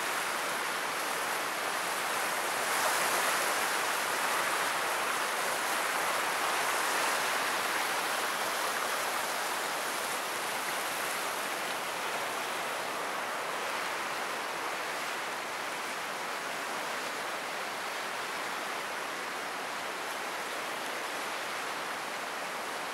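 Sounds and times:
river rushing over rapids: 0:00.0 - 0:22.9.

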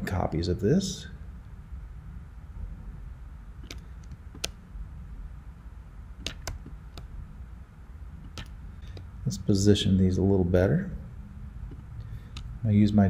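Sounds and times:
faint low hum: 0:00.0 - 0:13.0
mouse and keyboard clicks: 0:03.6 - 0:04.6, 0:06.2 - 0:07.1, 0:08.2 - 0:09.1, 0:11.7 - 0:12.6.

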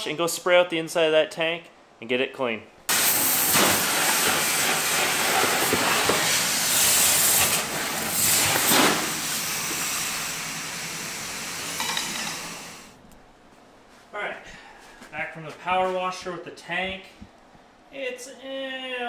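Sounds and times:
pressure washer spraying water: 0:02.9 - 0:12.9.

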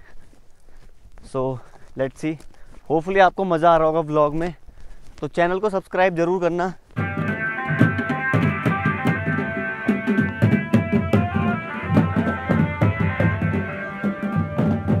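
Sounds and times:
dance music with drums: 0:07.0 - 0:15.0.

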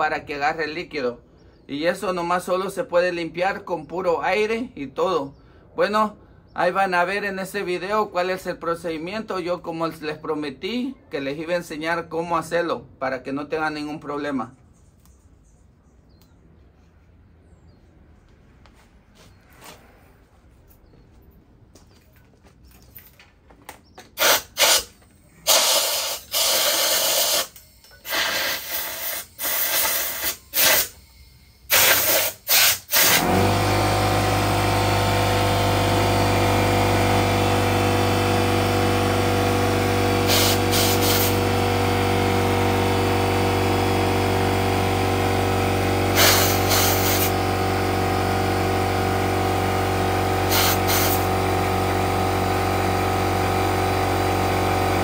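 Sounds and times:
air compressor motor running: 0:24.0 - 0:55.0
air blow gun hissing blasts: 0:24.2 - 0:33.6, 0:40.1 - 0:41.6, 0:46.0 - 0:47.7, 0:50.3 - 0:51.6.

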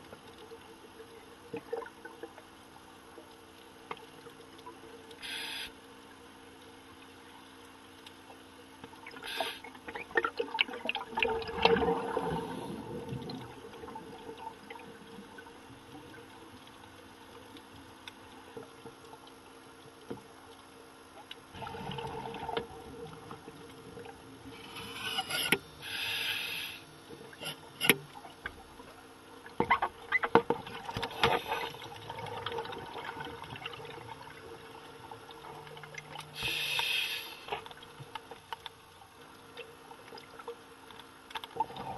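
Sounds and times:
faint steady hum: 0:00.0 - 0:41.9
underwater bubble bursts: 0:09.8 - 0:15.4, 0:21.5 - 0:24.2.

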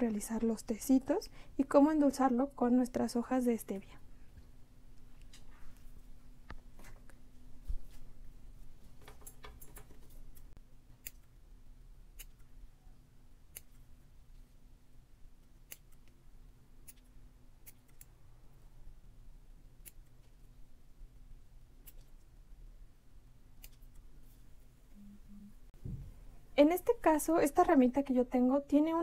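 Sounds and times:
faint steady hum: 0:00.0 - 0:29.0
small scissors snipping: 0:11.0 - 0:11.4, 0:12.1 - 0:12.5, 0:13.5 - 0:13.9, 0:15.4 - 0:16.2, 0:16.8 - 0:18.1, 0:19.8 - 0:20.4, 0:21.8 - 0:22.3, 0:23.6 - 0:24.1.

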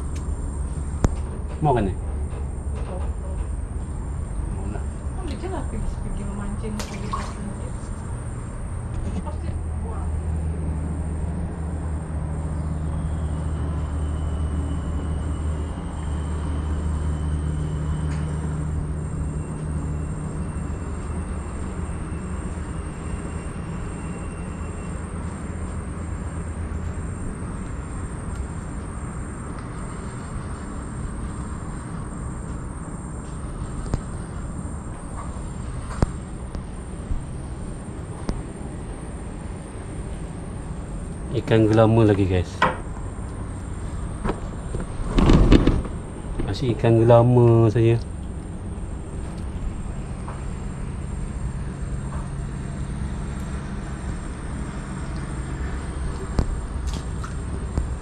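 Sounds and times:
low engine hum: 0:00.0 - 0:58.0
outdoor background noise: 0:00.0 - 0:58.0.

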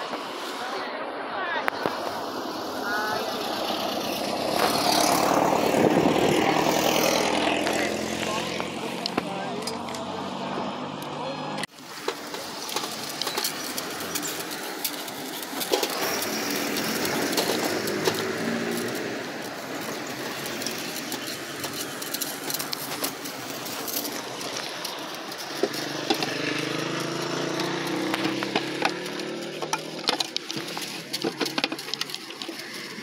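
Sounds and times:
vehicle engine running: 0:01.8 - 0:33.0
small clicks and knocks: 0:12.0 - 0:33.0.

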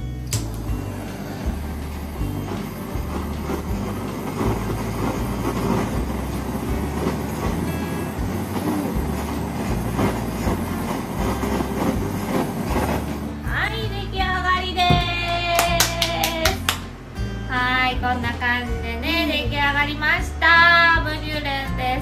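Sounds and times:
kitchen torch hissing: 0:00.2 - 0:13.6.

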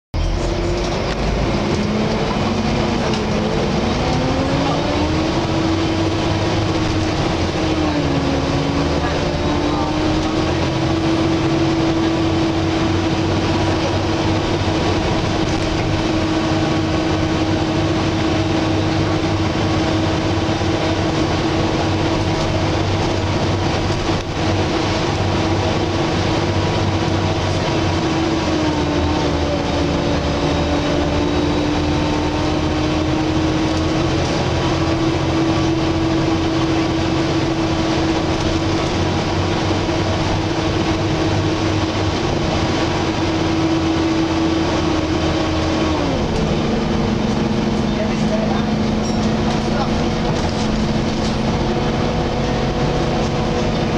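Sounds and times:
bus engine: 0:00.1 - 0:53.9
road noise: 0:00.1 - 0:53.9
bus cooling fan whining: 0:00.2 - 0:53.9.

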